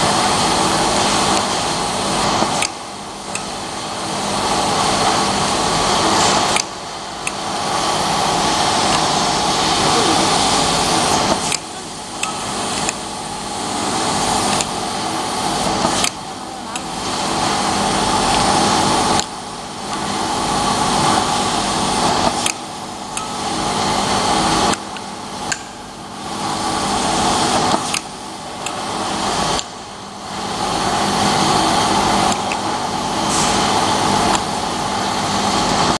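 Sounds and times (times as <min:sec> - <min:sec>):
labeling machine humming: 0:00.0 - 0:36.0
machine sharp click: 0:02.4 - 0:03.6.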